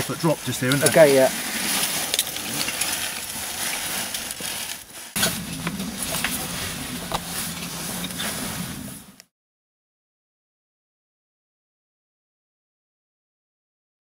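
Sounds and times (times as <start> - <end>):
clothing and gear scraping rock: 0.0 - 9.2
low hum: 1.2 - 9.3.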